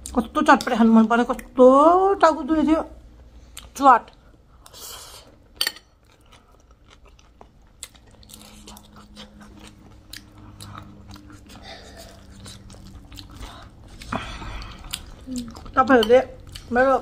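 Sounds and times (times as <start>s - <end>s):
chewing and crunching snack: 5.9s - 17.0s.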